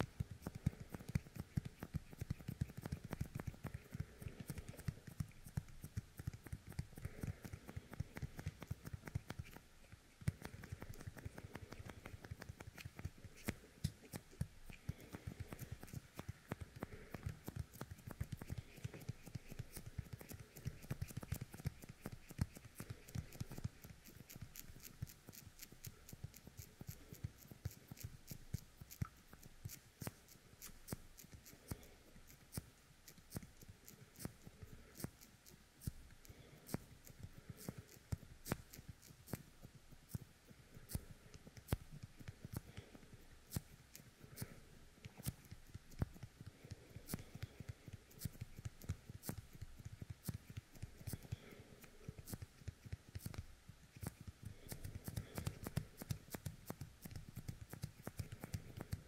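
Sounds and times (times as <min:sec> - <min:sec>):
sticky fingertips crackling: 0:00.0 - 0:28.1.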